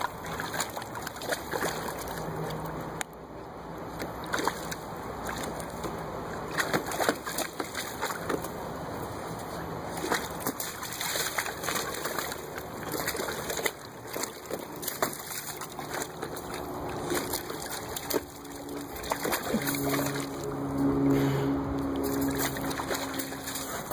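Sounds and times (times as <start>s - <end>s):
dog splashing in water: 0.0s - 3.0s, 3.9s - 21.1s, 21.8s - 23.9s
steady low tones: 16.1s - 23.9s.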